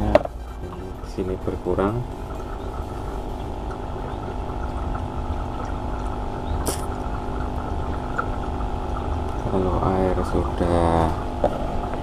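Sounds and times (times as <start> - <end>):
washing machine humming: 0.0 - 12.0
water draining from tub: 1.0 - 12.0.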